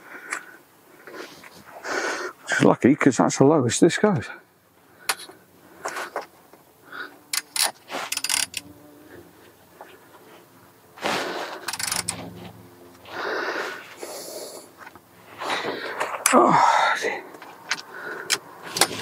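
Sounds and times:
torque wrench ratcheting and clicking: 0:07.3 - 0:08.7, 0:11.6 - 0:12.3.

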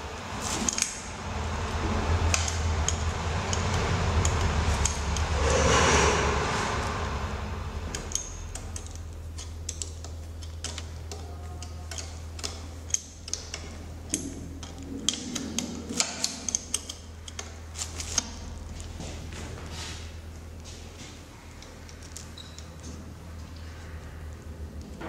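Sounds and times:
steady low hum: 0:00.0 - 0:25.0
clicks and taps on metal fittings: 0:07.9 - 0:18.4.

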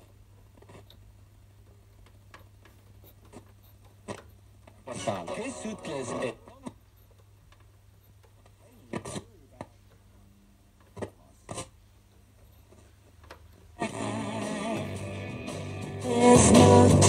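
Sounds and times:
music from radio: 0:04.8 - 0:06.7, 0:13.8 - 0:17.0
radio tuning between stations: 0:04.8 - 0:06.8, 0:08.7 - 0:09.7.

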